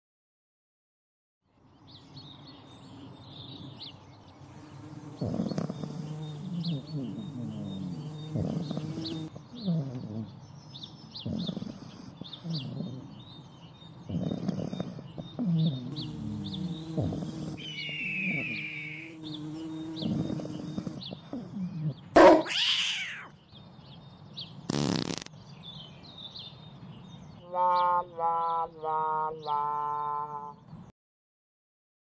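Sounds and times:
small birds chirping: 1.6 - 30.9
dog snoring: 5.0 - 10.4, 11.2 - 13.4, 14.0 - 22.5.

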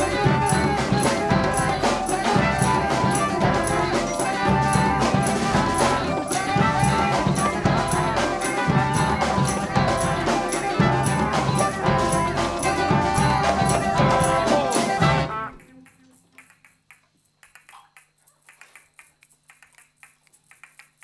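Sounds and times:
ensemble playing loudly: 0.0 - 16.3.

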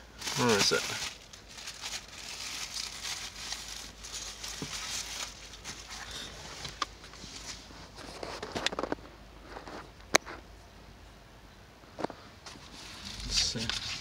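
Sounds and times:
rags rustling in plastic bucket: 0.2 - 9.9, 12.4 - 14.0.

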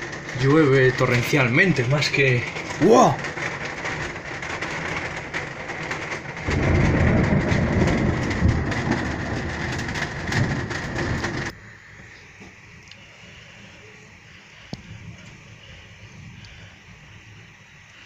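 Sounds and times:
thunder rolling: 0.0 - 11.6
torrential rain: 0.0 - 18.0.

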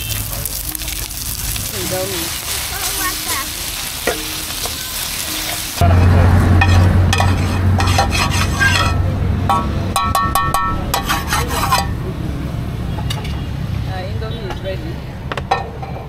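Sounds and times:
noodles sizzling in a pan: 0.0 - 9.0
metal utensil scraping a pan: 0.0 - 12.0.

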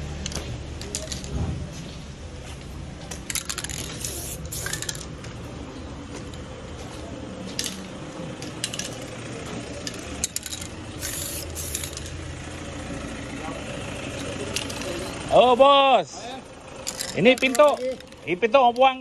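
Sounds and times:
ball rattling in spray can: 3.2 - 5.2, 9.8 - 12.2
spray paint hissing: 3.3 - 5.1, 10.3 - 12.2.

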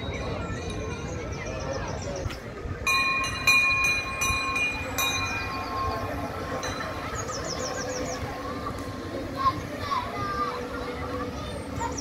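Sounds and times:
train bell ringing: 0.0 - 1.6, 2.8 - 8.1.

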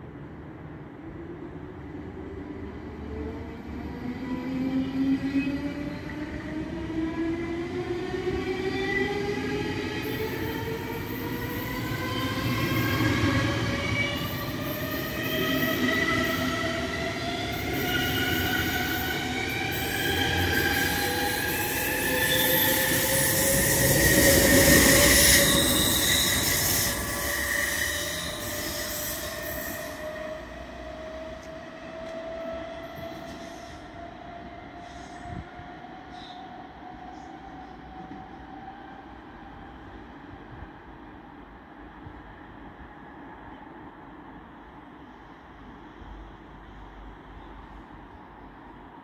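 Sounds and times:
electric train accelerating: 5.6 - 33.8.

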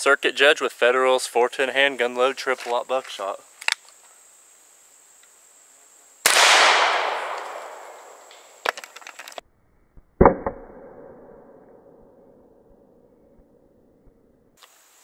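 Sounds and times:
muffled gunshot: 6.2 - 8.5
gunshot with long echo: 6.2 - 8.6.

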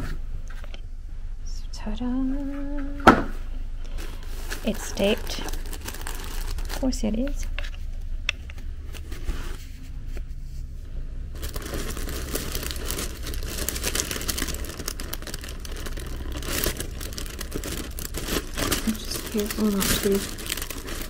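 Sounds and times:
paper and tape crinkling: 3.8 - 7.8, 11.4 - 21.0.

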